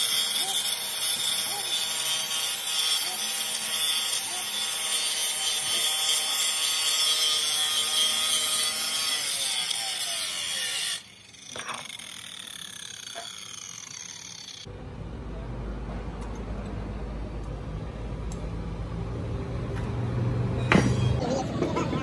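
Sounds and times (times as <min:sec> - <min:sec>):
angle grinder grinding metal: 0:00.0 - 0:14.7
grinder whine spinning down: 0:10.6 - 0:14.7.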